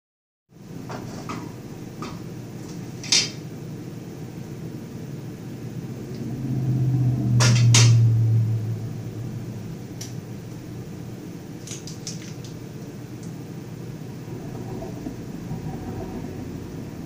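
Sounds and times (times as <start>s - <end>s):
low hum: 3.8s - 17.0s.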